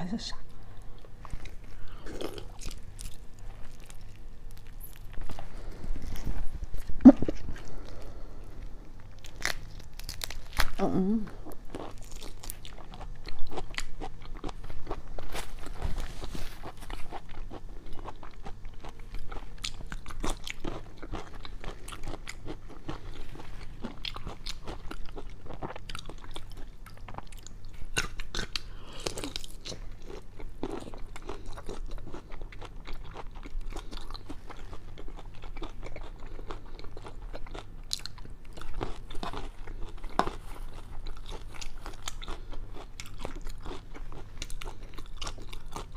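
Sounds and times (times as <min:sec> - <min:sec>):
chewing and biting shrimp: 0:09.0 - 0:10.8, 0:11.5 - 0:15.8, 0:16.6 - 0:45.9.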